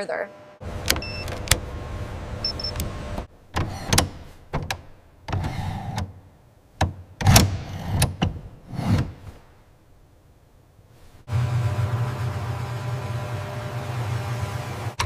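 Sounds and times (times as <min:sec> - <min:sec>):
cockpit controls clicking and clunking: 0:00.7 - 0:01.8, 0:02.4 - 0:06.2.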